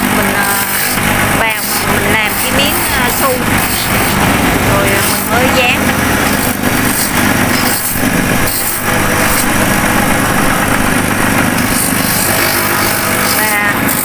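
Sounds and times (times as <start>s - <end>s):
sanding drum grinding shoe sole: 0.0s - 14.0s.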